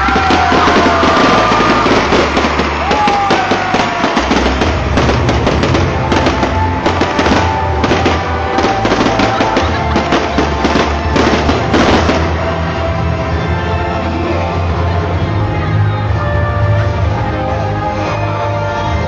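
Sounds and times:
fireworks bursting and crackling: 0.0 - 13.3
loud music with low bass: 0.0 - 19.0.

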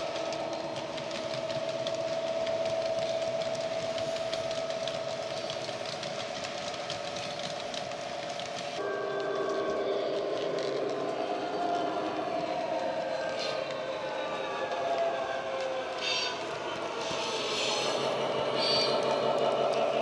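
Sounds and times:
model wagon wheels ticking on track: 0.0 - 8.8
model diesel locomotive engine: 0.0 - 20.0.

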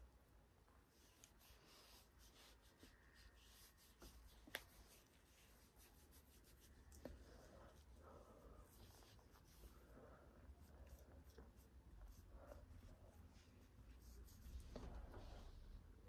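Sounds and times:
cotton pad rubbing skin: 0.9 - 8.0.

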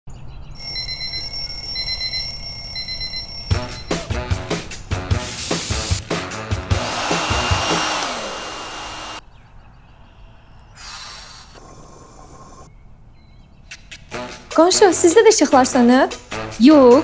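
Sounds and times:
upbeat music: 3.5 - 8.6
hair dryer running: 6.7 - 9.2.

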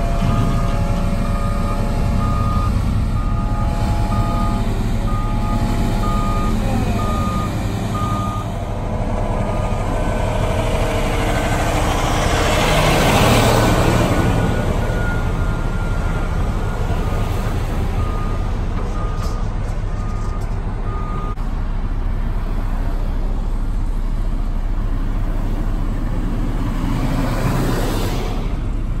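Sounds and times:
reversing alarm beeping: 0.0 - 8.6, 11.5 - 21.4
road traffic passing: 0.0 - 29.0.

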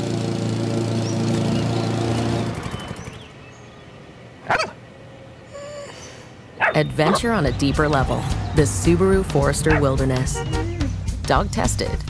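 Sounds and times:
lawn mower engine running: 0.0 - 4.2.

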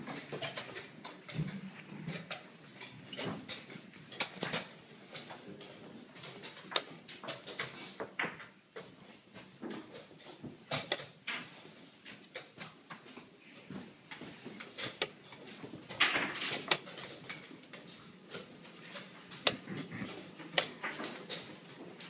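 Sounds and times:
chess pieces knocking on board: 19.5 - 21.0.

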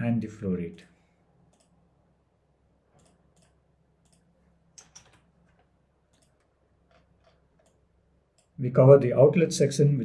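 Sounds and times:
computer keyboard and mouse clicks: 1.5 - 1.8, 3.0 - 7.8.

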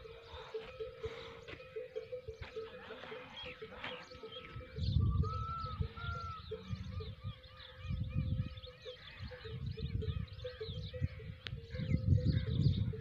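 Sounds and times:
small birds chirping: 0.0 - 13.0
wind buffeting microphone: 2.0 - 13.0.

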